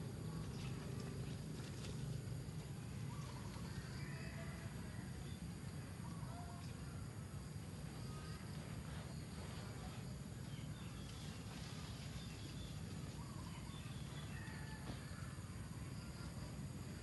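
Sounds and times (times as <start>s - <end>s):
faint bird chirps: 7.9s - 16.4s.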